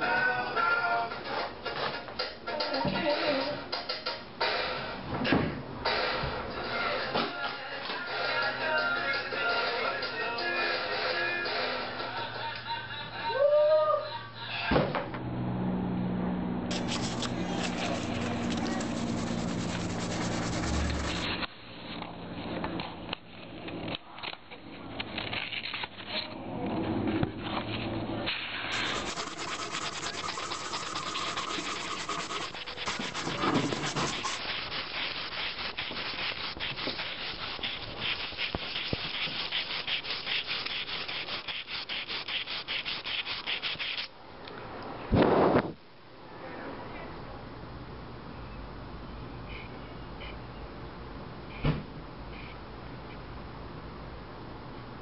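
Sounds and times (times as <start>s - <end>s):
sandpaper scratching on wood: 16.7s - 21.4s, 28.7s - 44.1s.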